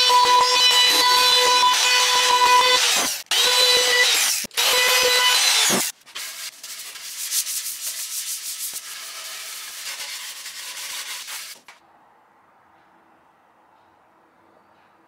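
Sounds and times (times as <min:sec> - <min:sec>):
router whining: 0:00.0 - 0:05.9
sandpaper rubbing on wood: 0:05.7 - 0:11.7.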